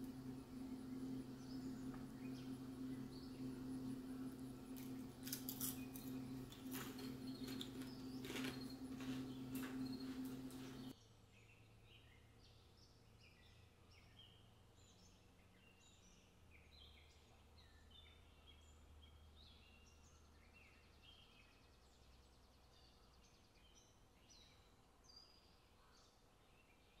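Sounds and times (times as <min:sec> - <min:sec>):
birds chirping: 0:00.0 - 0:10.9
faint low hum: 0:00.0 - 0:10.9.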